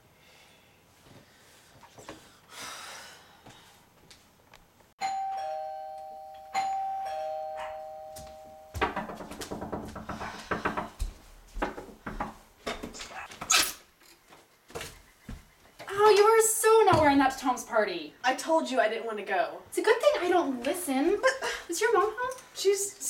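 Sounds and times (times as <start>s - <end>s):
two-tone doorbell chime: 5.0s - 8.9s.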